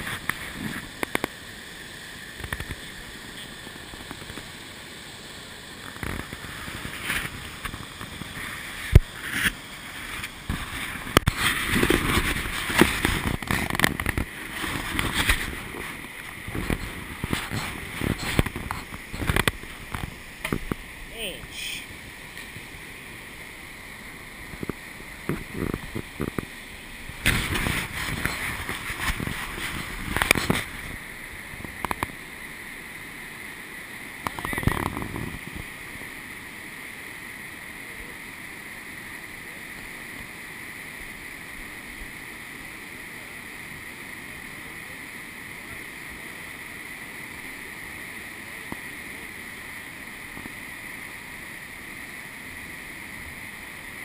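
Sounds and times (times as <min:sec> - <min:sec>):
whitewater rushing: 0:00.0 - 0:54.0
rustles on camera microphone: 0:06.0 - 0:20.2, 0:24.5 - 0:31.0.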